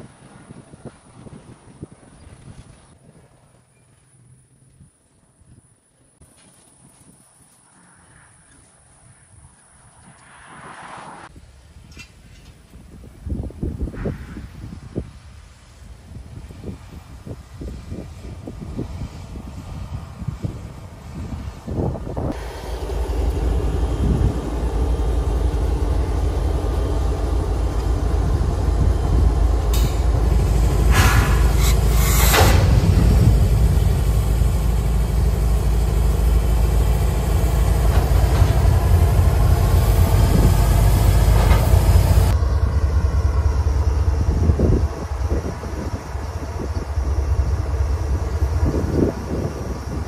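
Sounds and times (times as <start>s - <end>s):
diesel locomotive engine rumbling: 8.0s - 50.0s
rush of noise: 22.1s - 50.0s.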